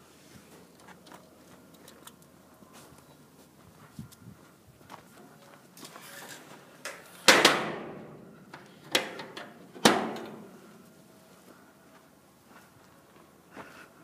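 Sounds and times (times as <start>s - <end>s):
sharp metallic bangs: 7.2s - 10.7s.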